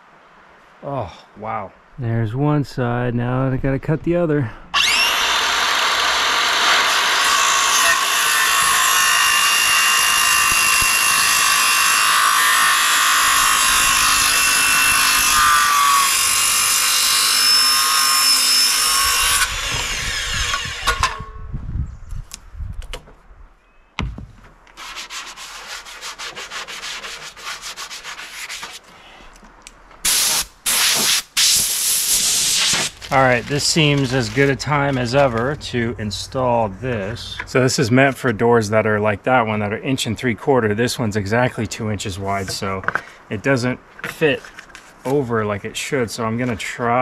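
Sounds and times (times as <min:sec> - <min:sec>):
circular saw cutting wood: 0:04.8 - 0:21.3, 0:24.8 - 0:28.8
thump: 0:24.0 - 0:24.5
quiet knocks: 0:24.0 - 0:24.7.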